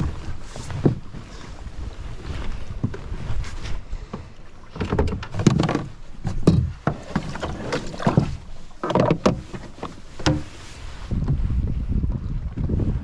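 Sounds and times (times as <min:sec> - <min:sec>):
knocks against kayak hull: 0:04.2 - 0:10.6.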